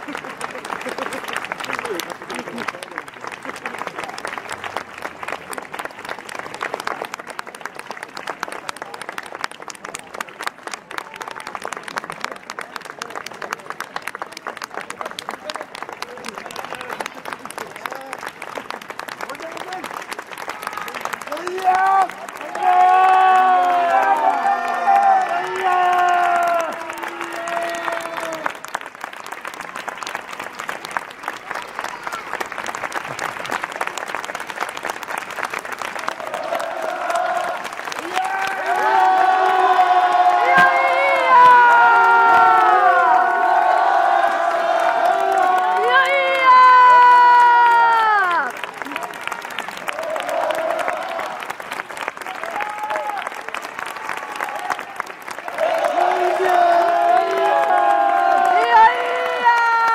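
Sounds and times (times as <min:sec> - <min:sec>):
crowd applauding: 0:00.0 - 0:59.9
voices: 0:38.1 - 0:44.8.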